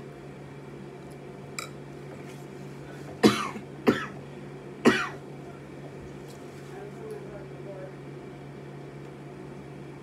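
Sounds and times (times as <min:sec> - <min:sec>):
woman coughing: 0:03.2 - 0:04.2, 0:04.8 - 0:05.2.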